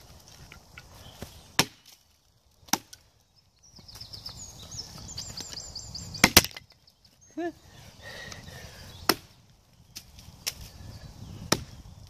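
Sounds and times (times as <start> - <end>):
blade chopping wood: 1.2 - 2.0, 2.6 - 3.0, 6.2 - 6.7, 9.0 - 9.4, 11.4 - 11.8.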